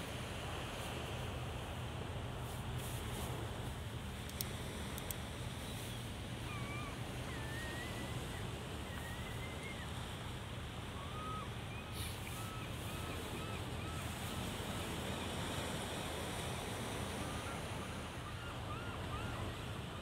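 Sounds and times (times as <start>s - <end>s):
waves on rocky shore: 3.3s - 20.0s
thin whistled bird calls: 5.6s - 10.2s, 10.9s - 14.1s.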